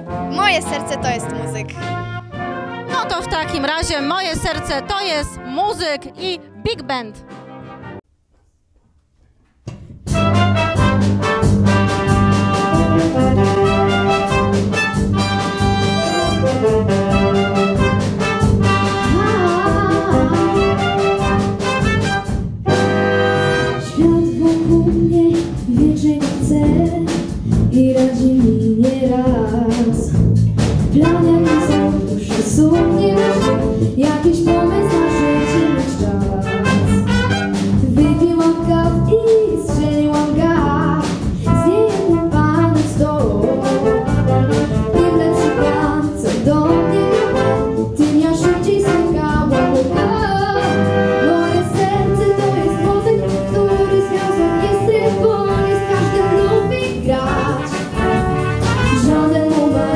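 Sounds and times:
big band playing jazz: 0:00.0 - 0:08.0, 0:09.7 - 0:59.9
woman singing into a microphone: 0:24.0 - 0:30.1, 0:37.8 - 0:43.8, 0:58.9 - 0:59.9.

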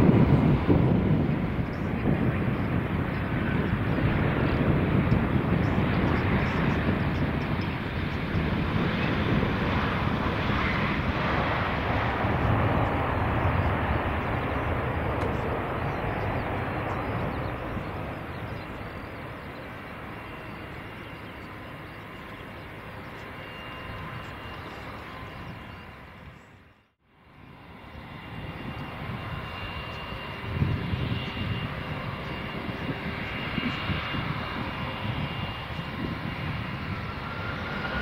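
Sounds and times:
jet engine noise: 0:00.0 - 0:38.0.

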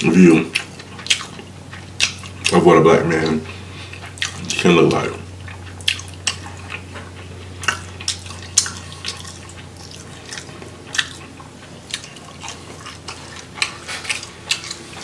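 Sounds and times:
wet chewing and lip smacks: 0:00.0 - 0:04.7, 0:05.3 - 0:15.0
steady low hum: 0:00.0 - 0:15.0.

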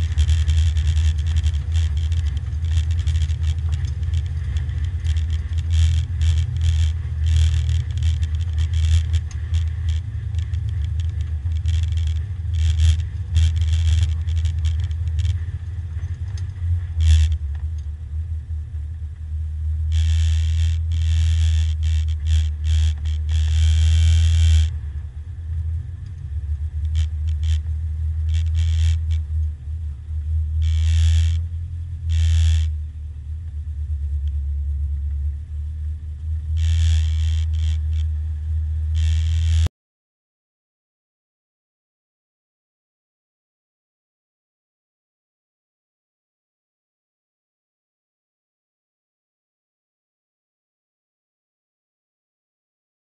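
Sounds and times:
race car engine at low revs: 0:00.0 - 0:39.7.

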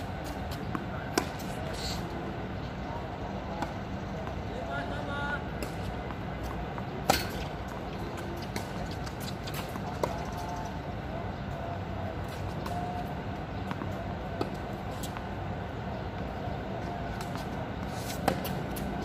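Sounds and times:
distant traffic hum: 0:00.0 - 0:19.0.

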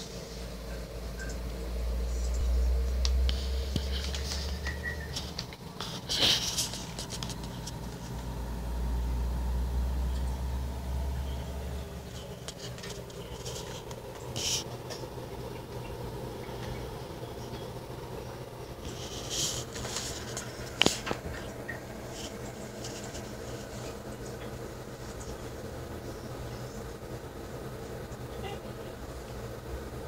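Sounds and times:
electrical hum and buzz: 0:00.0 - 0:30.0
deep rumble: 0:01.0 - 0:05.5.

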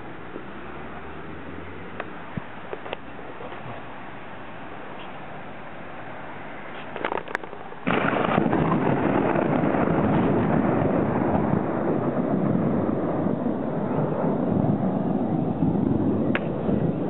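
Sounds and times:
thunder clap and rumbling: 0:07.9 - 0:17.0.

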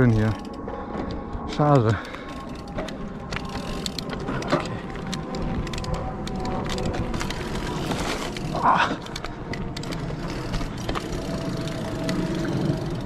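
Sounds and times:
bike clicks and rattles: 0:00.0 - 0:13.0
bike tyre rumble on dirt: 0:02.1 - 0:13.0.

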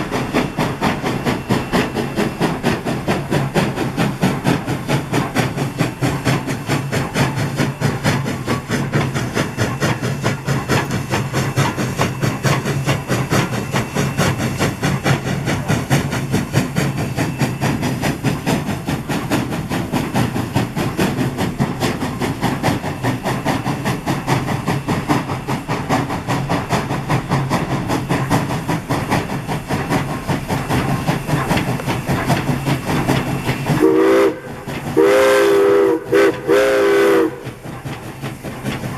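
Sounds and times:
steam locomotive exhaust beating: 0:00.0 - 0:38.9
steam whistle: 0:33.7 - 0:37.6.

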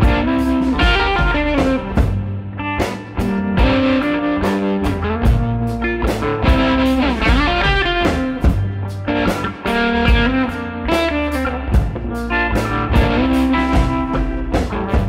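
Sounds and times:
blues-rock guitar: 0:00.0 - 0:15.0
drums: 0:00.0 - 0:15.0.

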